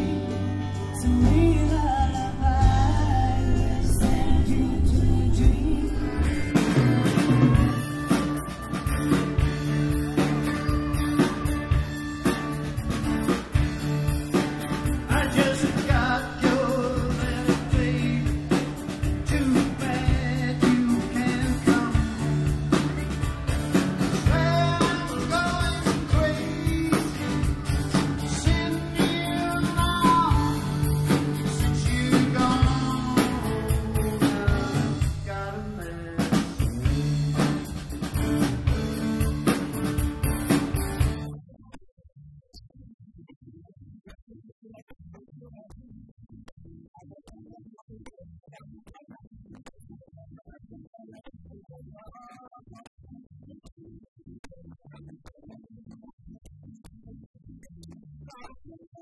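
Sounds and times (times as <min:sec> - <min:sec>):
song with guitar and drums: 0:00.0 - 0:41.4.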